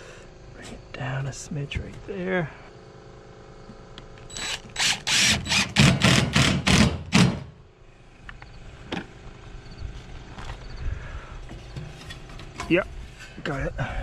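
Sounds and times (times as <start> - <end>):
cordless driver driving screw: 4.3 - 6.9.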